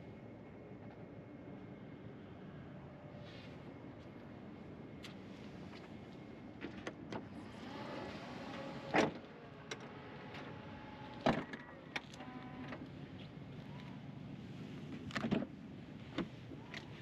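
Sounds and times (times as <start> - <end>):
electric motors whirring: 7.4 - 12.9.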